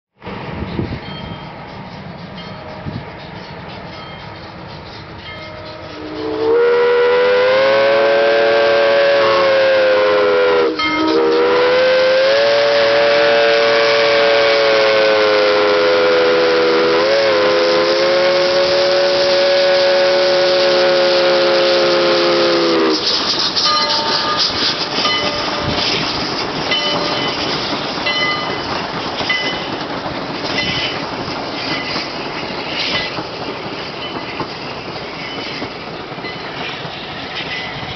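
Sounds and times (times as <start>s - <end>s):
train wheels rumbling and clacking: 0.2s - 37.9s
locomotive whistle chord: 2.4s - 25.8s.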